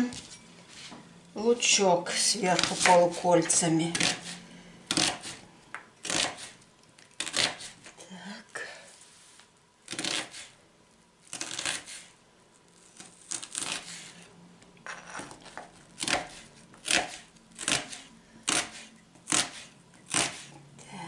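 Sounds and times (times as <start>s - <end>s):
knife slicing onion on board: 2.4s - 5.4s, 6.0s - 6.6s, 7.2s - 8.0s, 9.9s - 10.6s, 11.3s - 12.1s, 14.9s - 20.5s.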